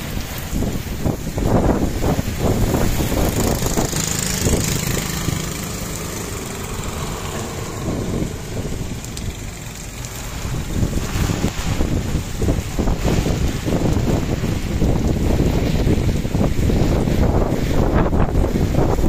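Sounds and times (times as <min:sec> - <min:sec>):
rain pouring on road: 0:00.0 - 0:19.0
wind rumbling on microphone: 0:00.0 - 0:19.0
passing small engine: 0:02.2 - 0:14.8.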